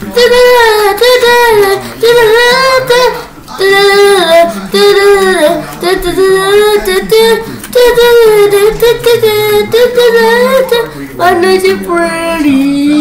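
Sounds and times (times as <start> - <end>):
child singing: 0.0 - 13.0
child breathing: 1.7 - 2.0, 3.1 - 3.4, 4.4 - 4.8, 7.4 - 7.8, 10.8 - 11.2.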